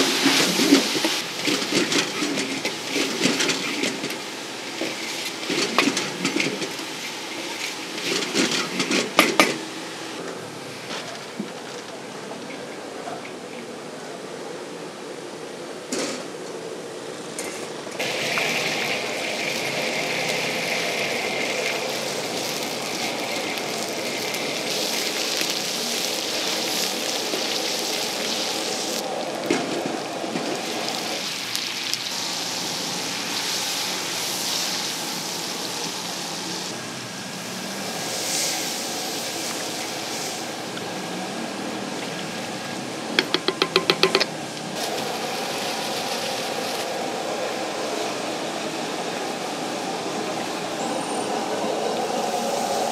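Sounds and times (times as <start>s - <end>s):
oil sizzling in a wok: 0.0s - 10.0s, 18.0s - 43.9s, 44.8s - 48.0s.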